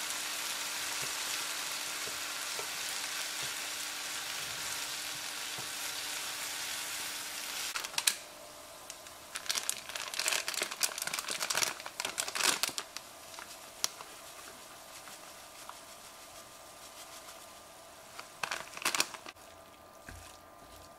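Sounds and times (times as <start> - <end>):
vegetables sizzling in a frying pan: 0.0 - 8.0
plastic packaging crinkling: 7.8 - 8.2, 9.3 - 14.1, 18.1 - 19.4.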